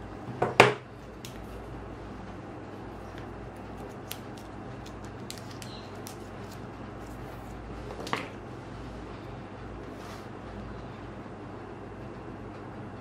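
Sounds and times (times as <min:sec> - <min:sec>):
steady low hum: 0:00.0 - 0:13.0
card stock crackle: 0:03.1 - 0:08.1
card and cardboard sleeve rustling: 0:03.1 - 0:08.2.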